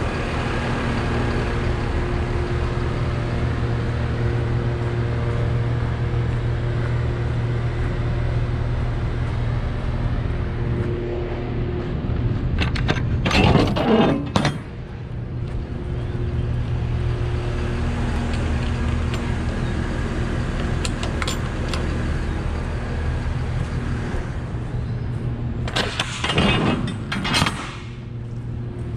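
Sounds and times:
diesel engine running: 0:00.0 - 0:28.9
rattling and clinking: 0:18.1 - 0:22.4.

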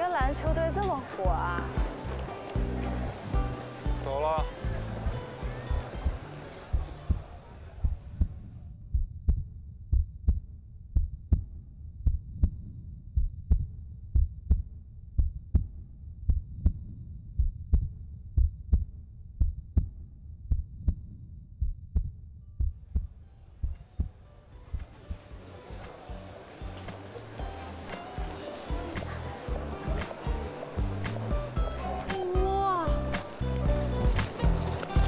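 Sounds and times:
background noise: 0:00.0 - 0:35.0
heartbeat thumps: 0:00.2 - 0:25.4.

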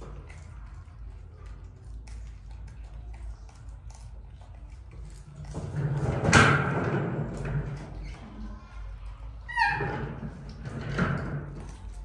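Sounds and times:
scraping clattering noise: 0:05.1 - 0:08.5, 0:09.5 - 0:12.0.

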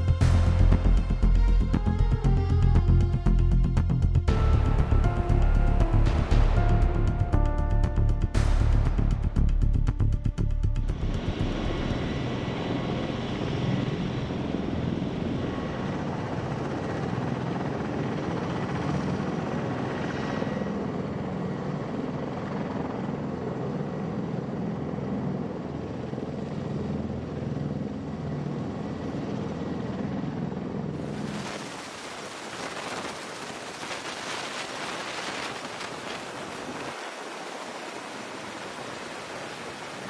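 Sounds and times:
helicopter rotor and engine drone: 0:00.0 - 0:40.0
turbine whine: 0:08.3 - 0:23.0.

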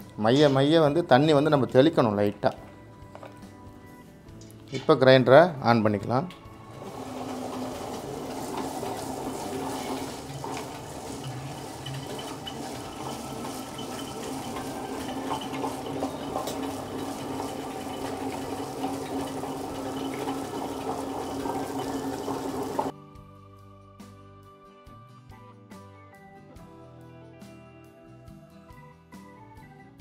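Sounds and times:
wet grinder motor humming: 0:06.3 - 0:22.9.

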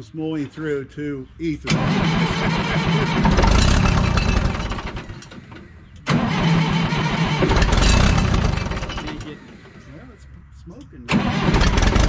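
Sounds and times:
diesel tractor engine starting: 0:01.6 - 0:10.0, 0:11.1 - 0:12.0.

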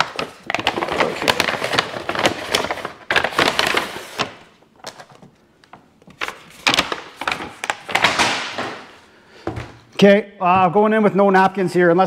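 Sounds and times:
paper bag rustling: 0:00.0 - 0:05.1.

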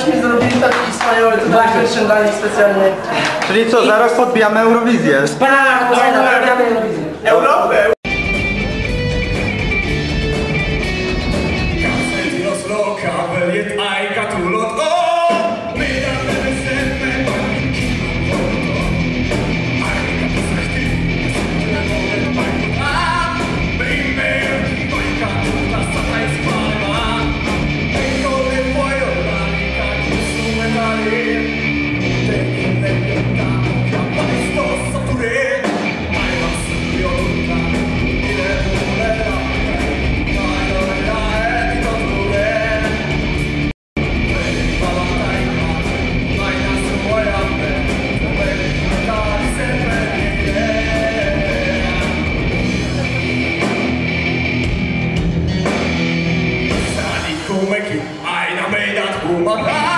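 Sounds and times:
drums with a steady beat: 0:08.0 - 0:12.6, 0:15.3 - 0:57.9
electric guitars: 0:08.0 - 0:12.8, 0:15.5 - 0:58.2
bass guitar: 0:08.0 - 0:13.6, 0:14.2 - 0:57.8
person singing: 0:11.7 - 0:43.2, 0:44.0 - 0:53.6, 0:56.7 - 0:59.9.

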